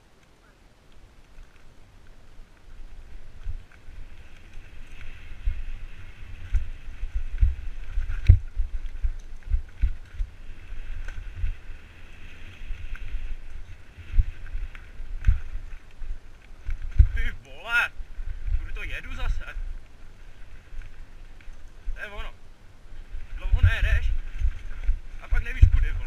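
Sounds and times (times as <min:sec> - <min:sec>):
wind buffeting microphone: 0:02.2 - 0:26.0
bike knocking on bumps: 0:03.4 - 0:11.6, 0:16.6 - 0:17.3.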